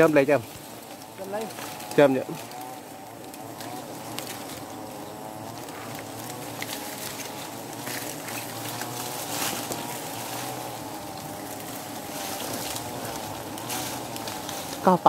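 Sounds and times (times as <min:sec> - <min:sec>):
bees buzzing: 0:00.0 - 0:15.0
rustling leaves and handling: 0:00.0 - 0:15.0.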